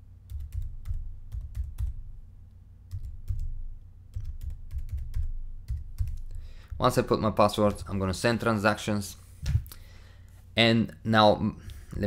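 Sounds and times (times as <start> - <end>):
keyboard typing: 0.3 - 2.0, 2.9 - 6.9.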